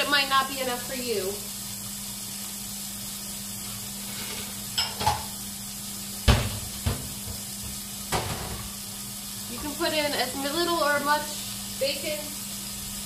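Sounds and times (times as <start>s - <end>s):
bacon sizzling in a frying pan: 0.0s - 13.0s
kitchen clatter knocks: 4.8s - 5.3s, 6.2s - 8.7s.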